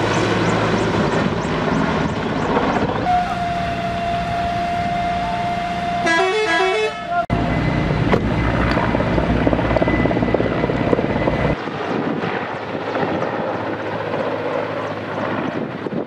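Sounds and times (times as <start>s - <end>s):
helicopter rotor and engine: 0.0s - 6.1s, 7.3s - 16.0s
wind on microphone: 8.0s - 16.0s.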